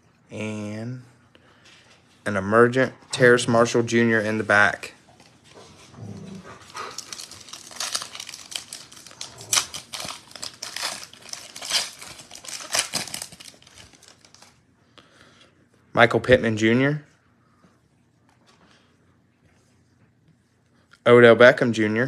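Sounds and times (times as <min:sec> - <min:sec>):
foil wrapper crinkling: 0:06.6 - 0:14.6.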